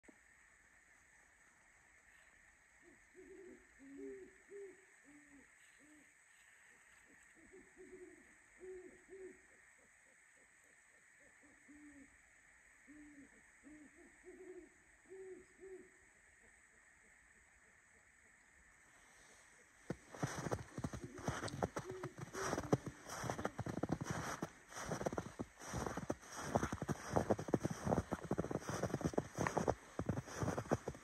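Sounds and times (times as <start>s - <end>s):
owls hooting: 2.8s - 6.1s, 6.7s - 10.5s, 11.2s - 12.2s, 12.8s - 16.6s, 20.1s - 31.0s.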